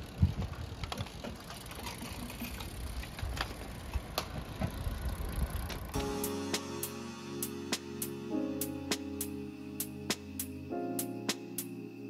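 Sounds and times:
bicycle drivetrain clicks: 0.0s - 6.0s.

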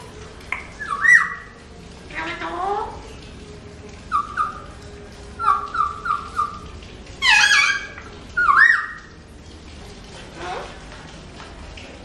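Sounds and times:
parakeets calling: 0.8s - 3.0s, 4.1s - 4.8s, 5.4s - 9.2s.

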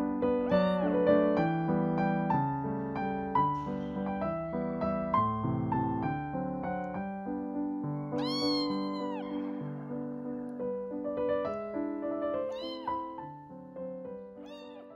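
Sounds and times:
soft piano music: 0.0s - 14.9s
kitten meowing: 0.4s - 1.4s, 8.1s - 9.8s, 12.3s - 13.4s, 14.4s - 14.9s.

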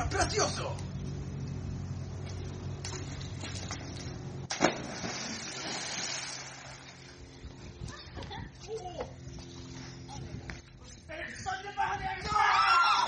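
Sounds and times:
loud splash into pool: 4.5s - 6.9s.

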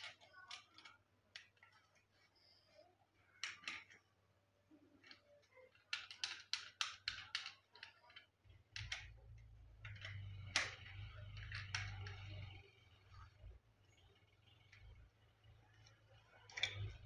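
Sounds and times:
plastic clicks: 0.0s - 2.2s, 3.4s - 4.0s, 5.0s - 12.6s, 15.8s - 17.0s.

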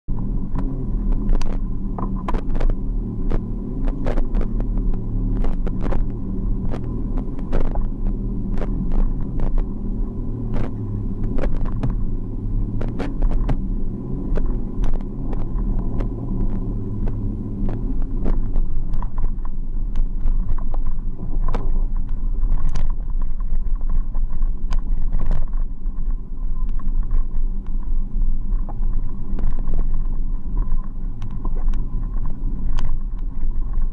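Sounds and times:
sharp clicks and knocks: 0.2s - 9.7s, 10.4s - 12.1s, 12.7s - 27.9s.

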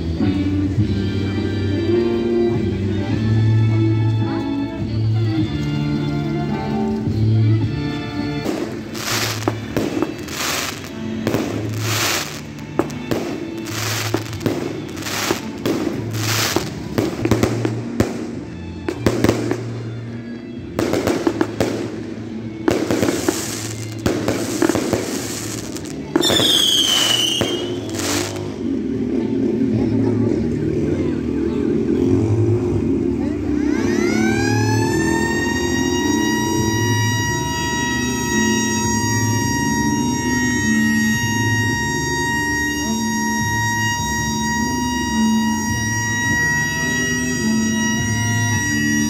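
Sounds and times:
music: 0.0s - 49.0s
fireworks cracking and banging: 6.9s - 30.0s, 33.8s - 49.0s
falling firework whistle: 8.4s - 19.9s, 22.7s - 28.7s, 33.5s - 49.0s.

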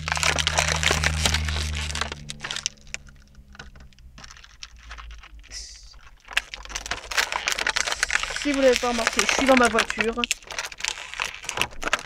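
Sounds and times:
low hum: 0.0s - 9.4s
plastic packaging clicking and crackling: 0.0s - 12.0s.

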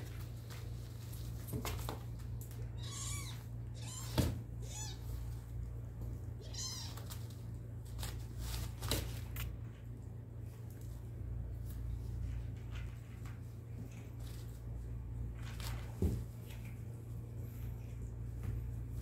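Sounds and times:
kittens mewing: 6.4s - 7.1s.

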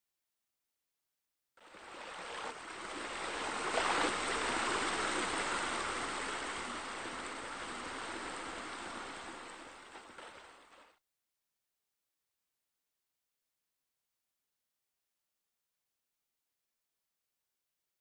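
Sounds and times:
small waterfall splashing: 1.6s - 11.0s.

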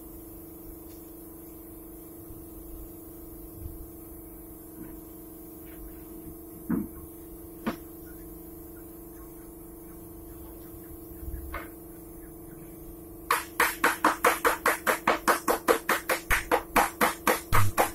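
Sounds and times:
low electrical hum: 0.0s - 17.9s
rhythmic musical beat: 13.3s - 17.9s.

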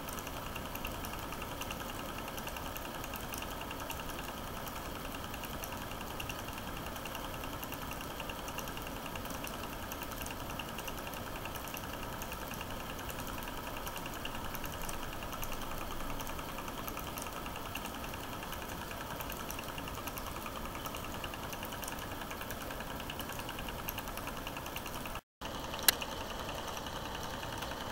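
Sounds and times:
film projector clattering: 0.0s - 27.9s.

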